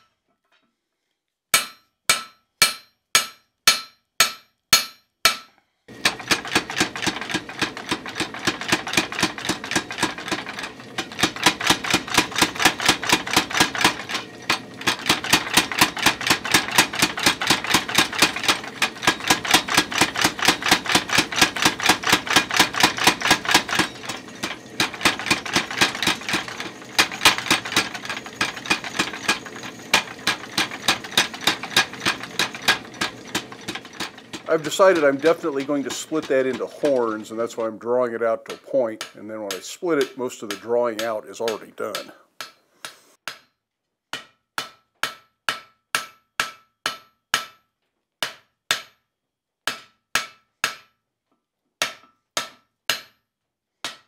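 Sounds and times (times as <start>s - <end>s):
hand hammer ringing on anvil: 1.6s - 5.5s, 18.4s - 37.7s
power hammer blows: 5.9s - 42.2s.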